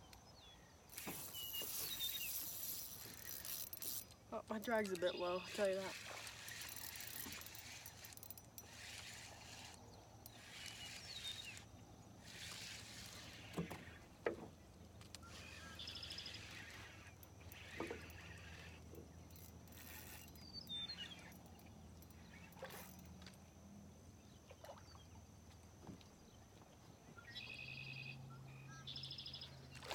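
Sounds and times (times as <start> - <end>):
bird chirping: 0.1 - 7.1, 27.2 - 29.7
fishing reel spinning: 0.9 - 14.0, 15.1 - 23.1.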